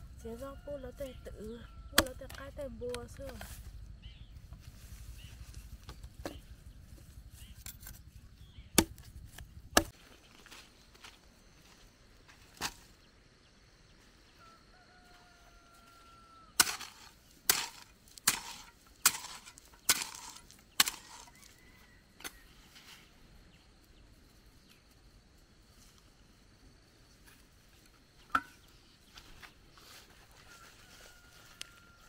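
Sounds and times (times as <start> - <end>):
hoe chopping dry soil: 2.0 - 2.4, 7.4 - 10.0, 16.6 - 21.6.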